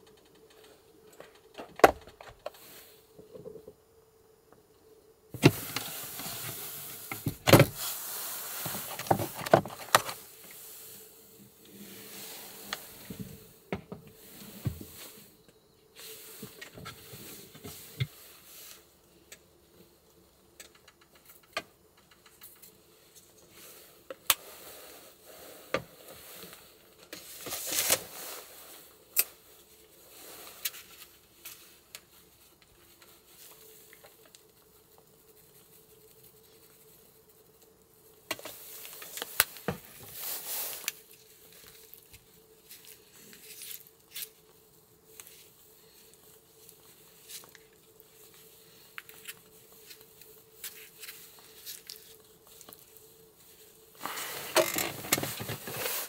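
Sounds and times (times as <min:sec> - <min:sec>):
faint steady hum: 0:00.0 - 0:56.0
rustling: 0:05.4 - 0:19.0, 0:22.3 - 0:56.0.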